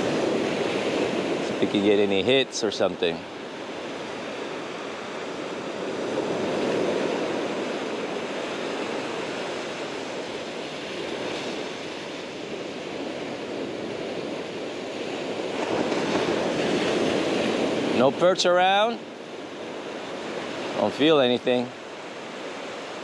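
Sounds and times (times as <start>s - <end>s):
waves breaking on sandy beach: 0.0s - 23.0s.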